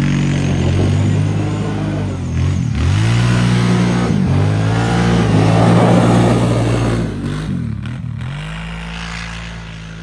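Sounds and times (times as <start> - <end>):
engine revving hard: 0.0 - 9.7.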